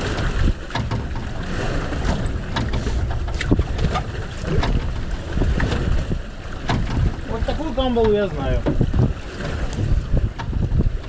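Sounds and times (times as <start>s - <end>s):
wind and water rumbling: 0.0s - 11.0s
wind buffeting microphone: 0.0s - 11.0s
light knocks and clicks: 2.0s - 5.0s.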